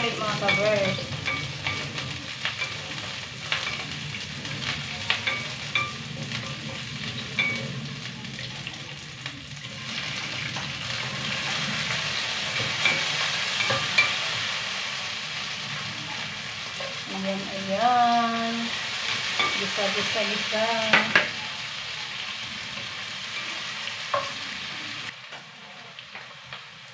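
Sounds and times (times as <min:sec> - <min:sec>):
food sizzling in a pan: 0:00.0 - 0:26.9.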